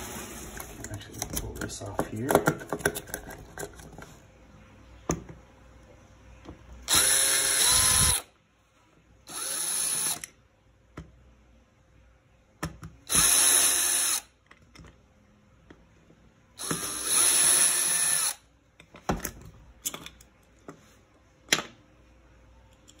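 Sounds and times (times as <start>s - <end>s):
cordless drill running: 6.9s - 8.3s, 9.3s - 10.3s, 13.1s - 14.3s, 16.6s - 18.4s.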